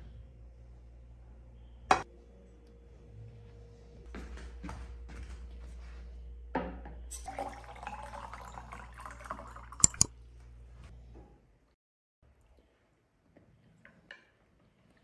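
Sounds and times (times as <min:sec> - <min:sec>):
water pouring into a glass: 0:07.1 - 0:10.1
glass clinks: 0:09.7 - 0:10.1.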